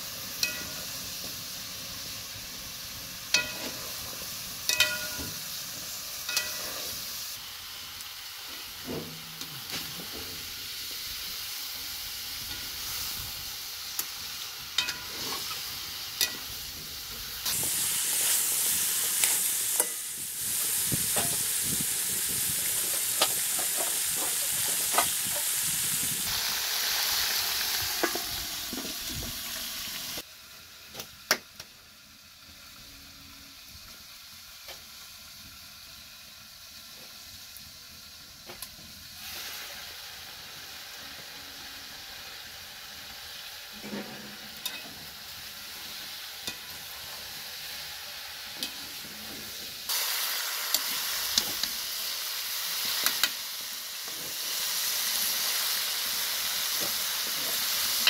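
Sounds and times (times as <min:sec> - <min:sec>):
chicken feet sizzling in a pan: 0:00.0 - 0:58.0
metal spatula scraping a pan: 0:06.3 - 0:07.1, 0:14.8 - 0:16.5, 0:43.8 - 0:45.0.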